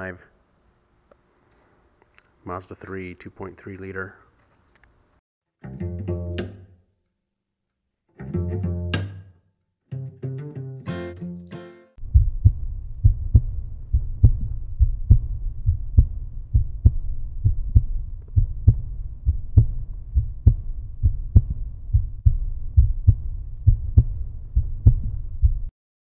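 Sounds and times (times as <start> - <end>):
music with deep bass pulse: 12.0 - 25.7.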